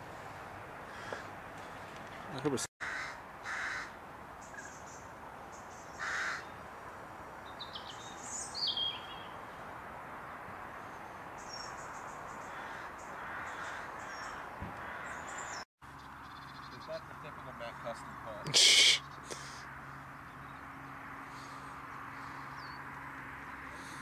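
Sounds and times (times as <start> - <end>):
harsh caw-like bird call: 0.9 - 1.3, 2.8 - 4.0, 5.9 - 6.5, 12.3 - 15.6.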